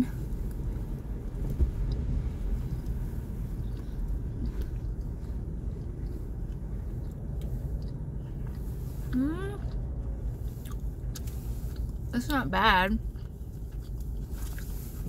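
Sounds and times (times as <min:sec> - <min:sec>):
car idling inside cabin: 0:00.0 - 0:15.0
person chewing food: 0:00.2 - 0:12.2, 0:13.0 - 0:15.0.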